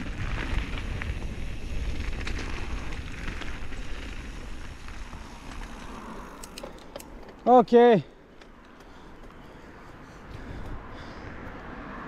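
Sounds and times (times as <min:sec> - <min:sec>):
bike tyres on gravel: 0:00.0 - 0:12.0.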